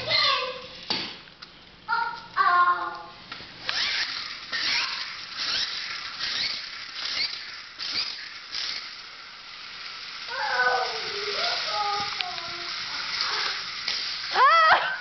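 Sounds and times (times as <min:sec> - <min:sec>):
child's voice: 0:00.0 - 0:00.8, 0:01.9 - 0:03.2, 0:10.3 - 0:13.8
toy cars rattling on wooden floor: 0:03.7 - 0:14.6.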